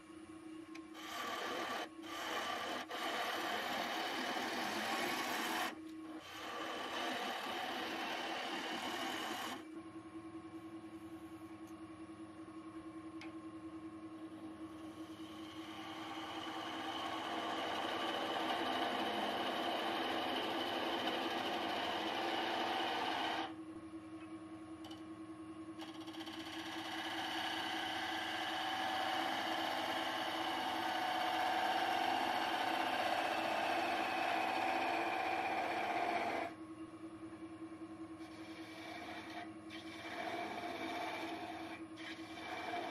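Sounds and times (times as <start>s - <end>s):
wood lathe humming: 0.8s - 9.7s, 14.7s - 23.6s, 25.8s - 36.6s, 38.2s - 42.9s
gouge cutting wood hissing: 1.0s - 9.6s, 15.0s - 23.5s, 26.6s - 36.5s, 38.2s - 42.9s.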